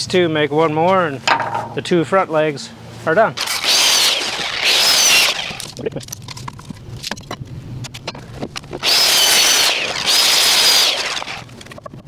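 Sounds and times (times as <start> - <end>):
board and saw handling knocks: 1.3 - 1.8
circular saw cutting wood: 3.4 - 5.8, 8.8 - 11.6.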